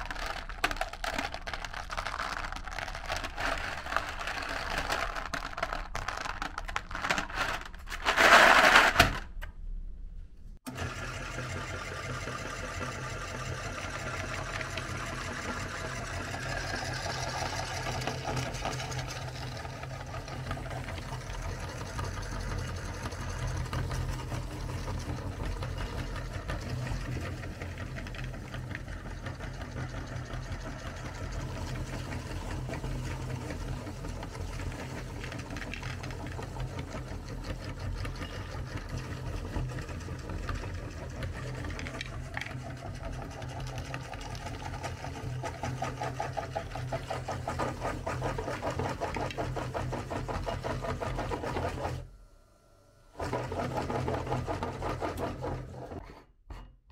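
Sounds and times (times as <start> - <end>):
electric meat grinder running: 0.0 - 5.3, 10.7 - 52.1, 53.2 - 56.0.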